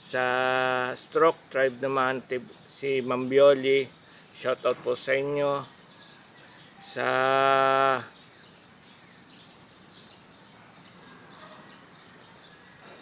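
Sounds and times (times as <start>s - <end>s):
man's drawn-out syllable: 0.0s - 5.7s, 6.8s - 8.1s
shrill insect chorus: 0.0s - 13.0s.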